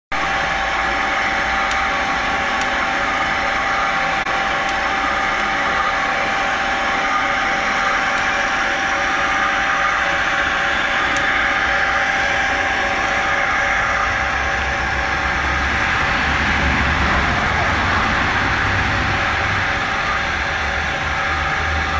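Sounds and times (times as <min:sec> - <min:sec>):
electric winch gear whine: 0:00.1 - 0:21.9
electric motor hum: 0:00.2 - 0:21.9.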